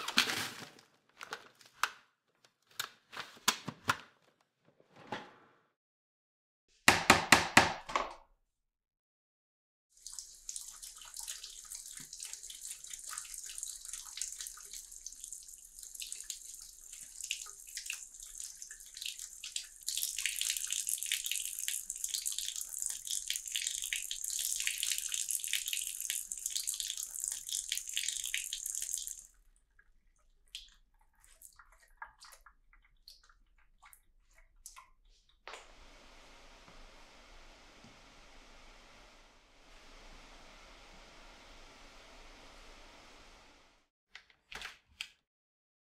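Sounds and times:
water dripping: 10.0 - 35.6
tap water splashing: 10.2 - 14.8.

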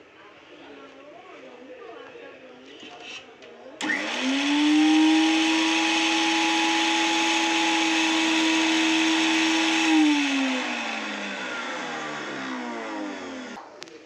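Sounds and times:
mixer grinder running: 3.8 - 13.6
motor winding down whine: 3.8 - 13.6.

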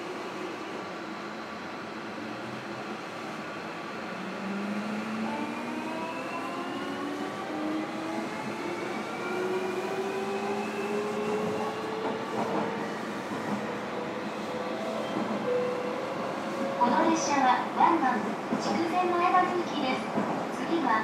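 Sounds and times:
train wheels rumbling on track: 4.1 - 21.0.

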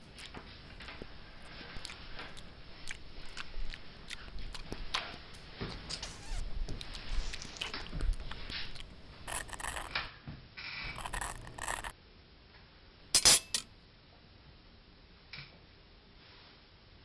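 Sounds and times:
cutlery clicking and scraping on plates: 13.2 - 13.7.

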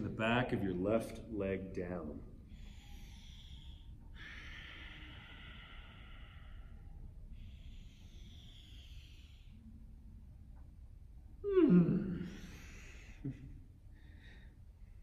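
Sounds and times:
low room hum: 0.0 - 15.0
man breathing deeply: 2.2 - 10.4, 11.5 - 15.0.

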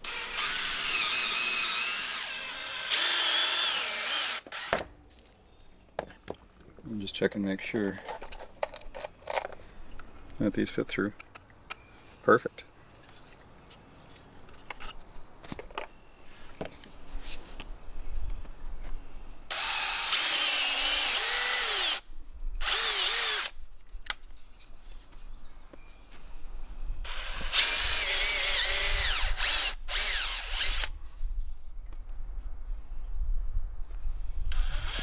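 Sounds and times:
cordless drill boring into wood: 0.0 - 4.8, 19.5 - 22.0, 22.6 - 23.5, 27.0 - 30.9, 34.5 - 35.0.

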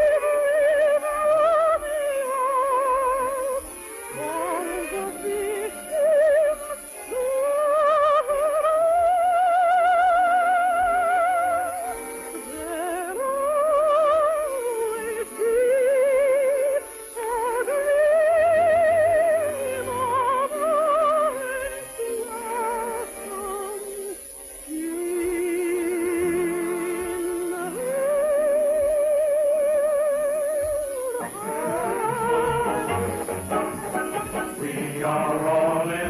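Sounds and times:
soprano singing high notes: 0.0 - 36.0
orchestral accompaniment: 1.8 - 7.9, 31.2 - 36.0.

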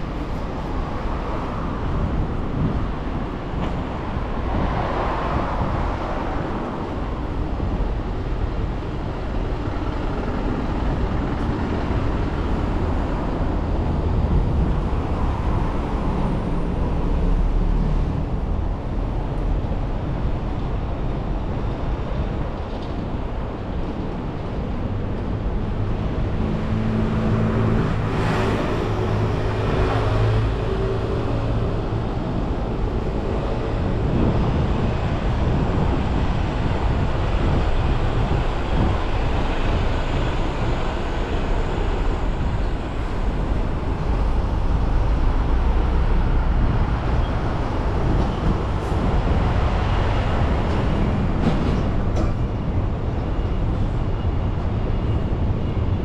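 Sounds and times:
road traffic passing: 0.0 - 56.0.

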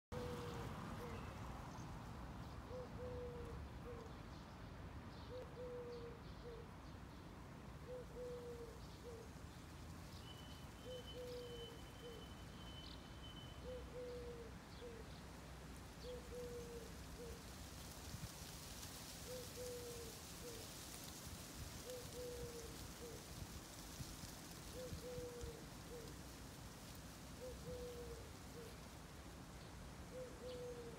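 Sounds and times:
dove cooing: 0.1 - 1.2, 2.7 - 4.1, 5.3 - 6.6, 7.8 - 9.3, 10.8 - 12.3, 13.6 - 15.1, 16.0 - 17.4, 19.2 - 21.2, 21.8 - 23.9, 24.6 - 26.2, 27.4 - 28.8, 30.1 - 30.9.

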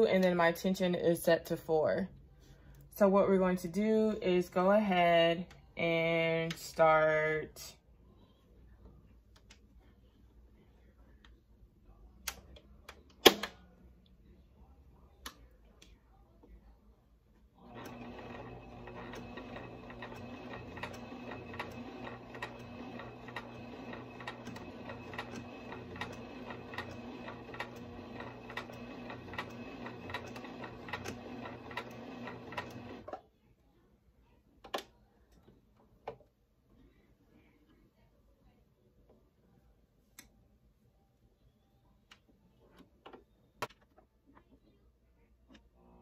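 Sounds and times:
electric sewing machine running: 17.6 - 33.1.

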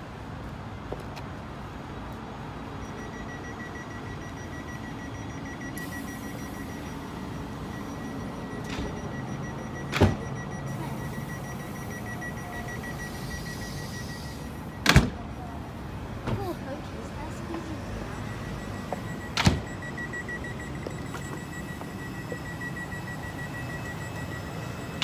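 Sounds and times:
pulsing electronic warning tone: 2.8 - 15.5, 17.8 - 25.0.

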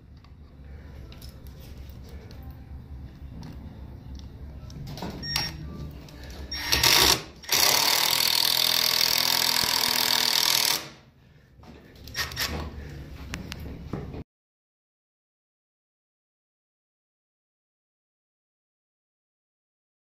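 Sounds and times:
cordless power driver driving screws: 6.5 - 11.0, 12.1 - 12.6.

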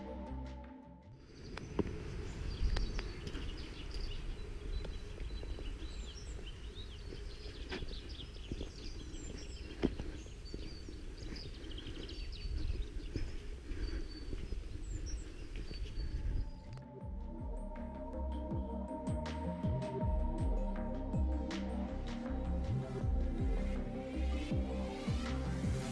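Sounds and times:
small birds chirping: 1.2 - 25.9
low rumble: 12.2 - 25.9.

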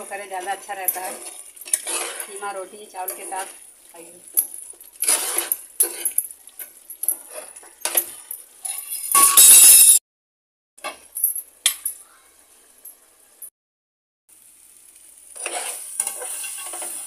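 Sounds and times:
metal spatula scraping a pan: 0.0 - 9.3, 15.2 - 17.0.

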